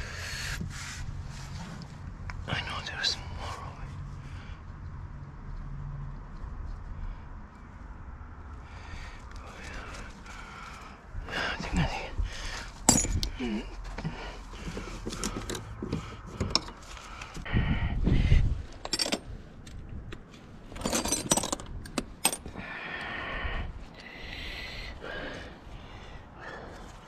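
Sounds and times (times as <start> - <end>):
metal tools clinking and rattling: 12.8 - 13.4, 16.4 - 16.8, 18.7 - 19.8, 20.6 - 22.6.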